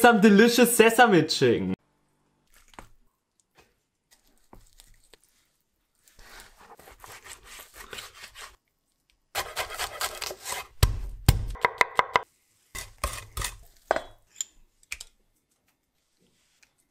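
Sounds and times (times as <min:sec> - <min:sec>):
knife rubbing through raw meat: 0:04.3 - 0:08.6
knife chopping on wooden board: 0:09.4 - 0:12.2.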